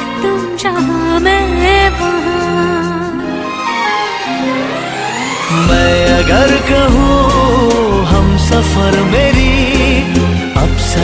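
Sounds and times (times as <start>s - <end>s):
instrumental film song music: 0.0s - 11.0s.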